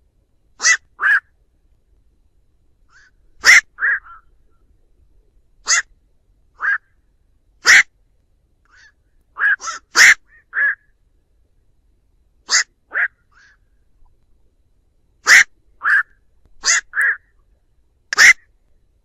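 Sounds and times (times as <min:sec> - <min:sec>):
heron short calls: 0:00.6 - 0:01.3, 0:02.9 - 0:04.3, 0:05.6 - 0:05.9, 0:06.6 - 0:06.9, 0:07.6 - 0:07.9, 0:08.7 - 0:10.9, 0:12.5 - 0:13.6, 0:15.2 - 0:17.3, 0:18.1 - 0:18.5.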